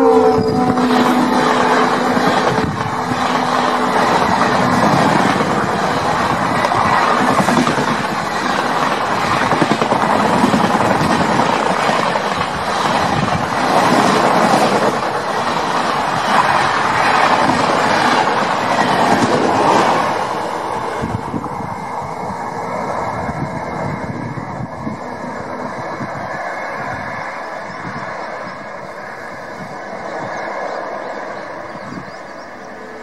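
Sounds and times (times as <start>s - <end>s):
train wheels rumbling on rails: 0.0s - 33.0s
clickety-clack over rail joints: 0.7s - 20.4s.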